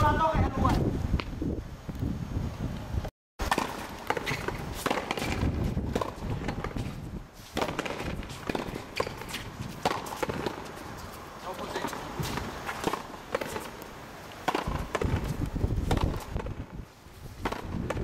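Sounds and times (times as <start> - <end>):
rubber ball struck by rackets: 3.4 - 6.8, 7.6 - 10.6, 14.4 - 15.3, 15.9 - 16.6, 17.4 - 18.0
shoes scuffing on court: 3.4 - 18.0.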